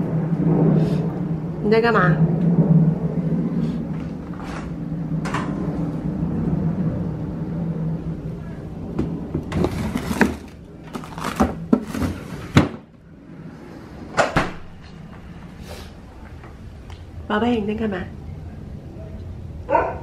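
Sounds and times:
steady low hum: 0:00.0 - 0:20.0
frozen food bags rustling and knocking: 0:09.4 - 0:12.8.

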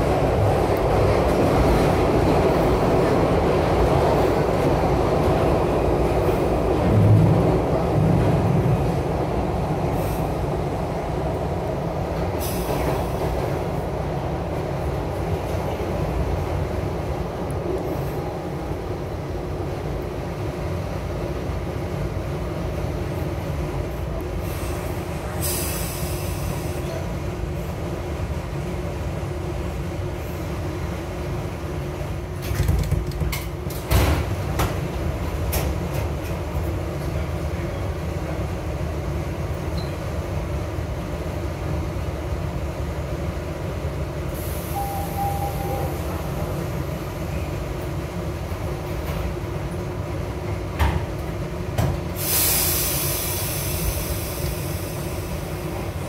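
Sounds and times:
subway train humming: 0:00.0 - 0:56.0
air hiss: 0:24.4 - 0:26.8, 0:52.1 - 0:56.0
short beep: 0:44.8 - 0:45.9.

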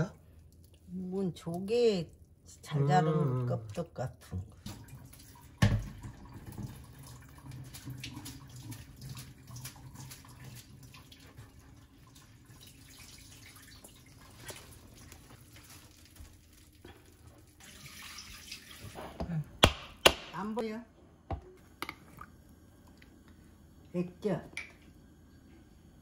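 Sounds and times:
water trickling and dripping: 0:00.0 - 0:02.7, 0:03.3 - 0:19.1
wet seaweed squelching: 0:14.2 - 0:18.2.

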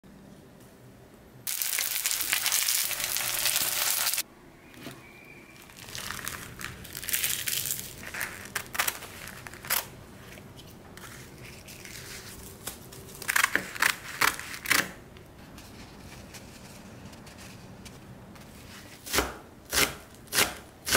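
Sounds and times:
dry crinkling: 0:01.5 - 0:04.2, 0:05.6 - 0:15.0.

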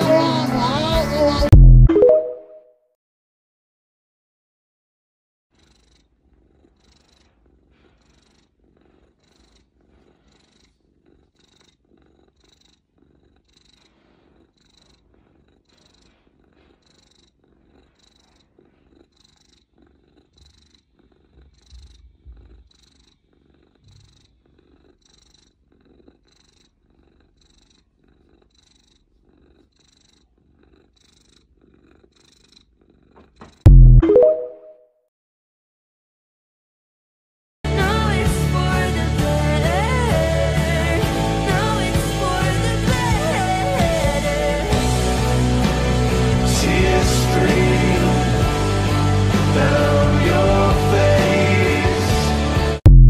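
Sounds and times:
cat purring: 0:00.0 - 0:01.5, 0:05.6 - 0:33.7, 0:39.6 - 0:52.2.

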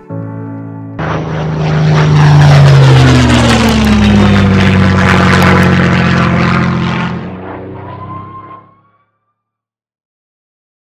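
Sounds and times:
propeller airplane fly-by: 0:01.0 - 0:08.9.

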